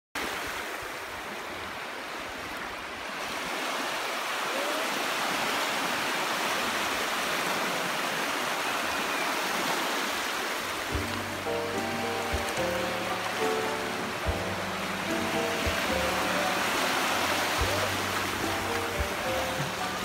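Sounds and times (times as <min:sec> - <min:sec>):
small waves breaking in surf: 0:00.2 - 0:20.0.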